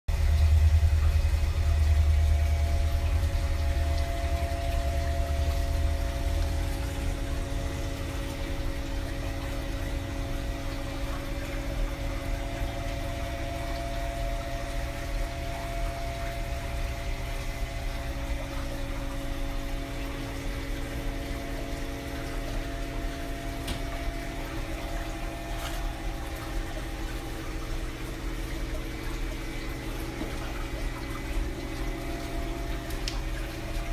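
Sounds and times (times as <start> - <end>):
deep rumble: 0.1 - 9.4
aquarium filter pump hum: 0.1 - 33.9
water circulating: 0.1 - 33.9.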